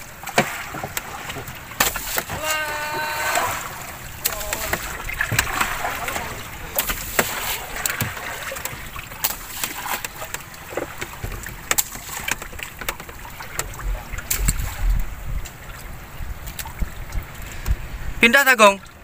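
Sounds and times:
boat knocks and splashes: 0.0 - 19.0
water washing: 0.0 - 19.0
wind on microphone: 13.7 - 18.2.

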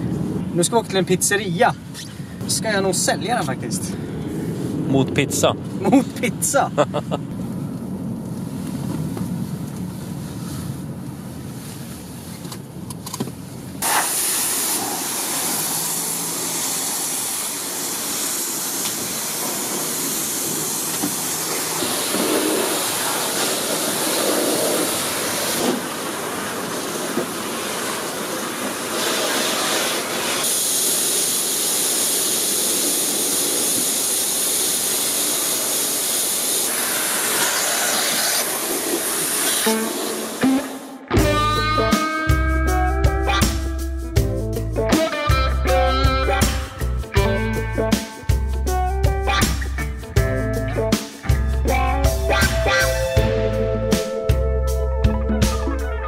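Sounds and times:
car rolling slowly: 4.8 - 13.8
pressure washer spray hissing: 13.8 - 41.1.

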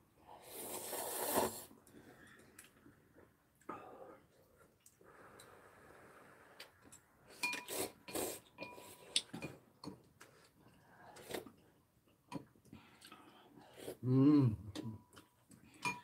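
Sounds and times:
noodles slurped: 0.4 - 1.7.

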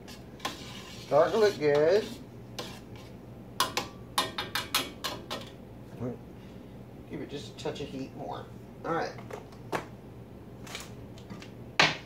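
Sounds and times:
spoon stirring thick mixture: 0.0 - 5.5.

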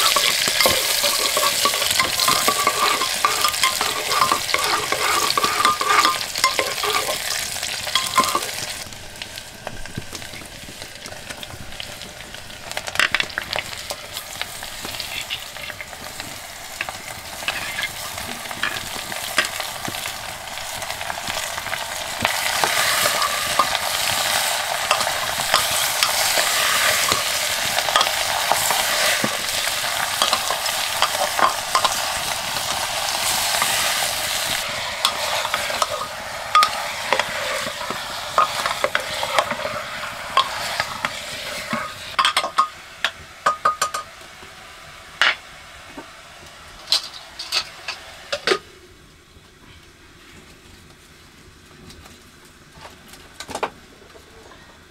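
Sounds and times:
metal spoon scraping a pot: 0.0 - 8.6, 17.4 - 18.0
meat sizzling in a pot: 0.0 - 49.1.

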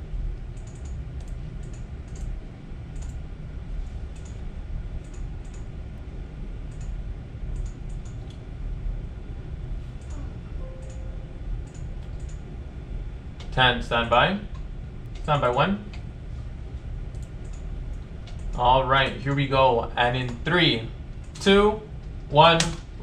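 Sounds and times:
low hum: 0.0 - 23.0
buttons and keys clicking: 0.6 - 2.3, 10.0 - 12.4.

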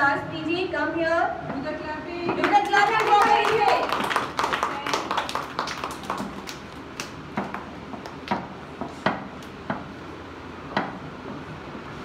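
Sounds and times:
children clapping: 2.4 - 8.4.

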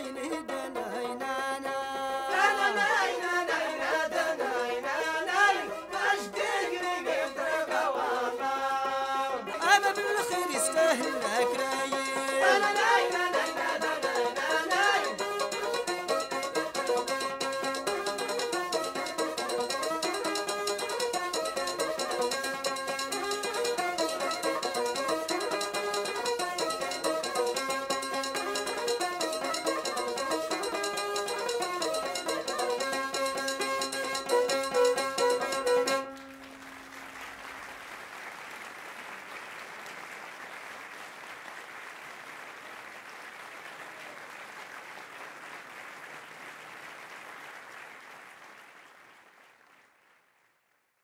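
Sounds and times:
traditional string-instrument music: 0.0 - 37.2
audience applause: 35.9 - 51.0.

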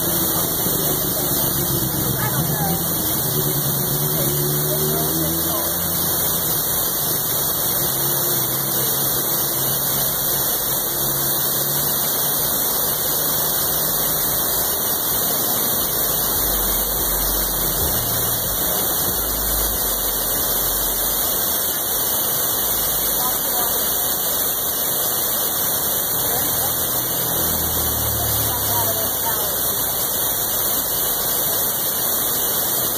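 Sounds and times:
water pouring over a weir: 0.0 - 32.9.

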